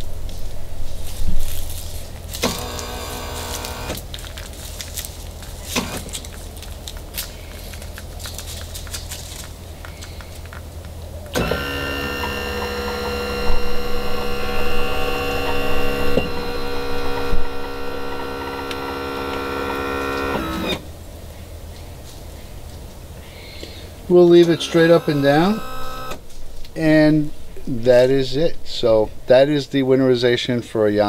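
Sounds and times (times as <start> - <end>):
electric tilt motor running: 2.3 - 4.1, 11.3 - 20.9, 24.2 - 26.2.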